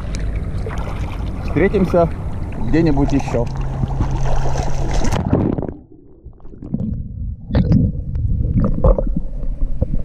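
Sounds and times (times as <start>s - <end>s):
muffled underwater gurgling: 0.0s - 10.0s
water sloshing and splashing: 0.0s - 10.0s.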